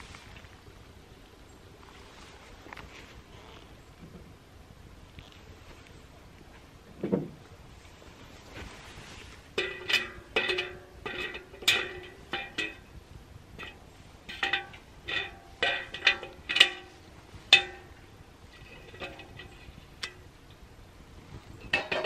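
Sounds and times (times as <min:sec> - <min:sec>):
metal pot handle clinking: 0:09.6 - 0:12.9, 0:13.6 - 0:20.2, 0:21.6 - 0:22.0.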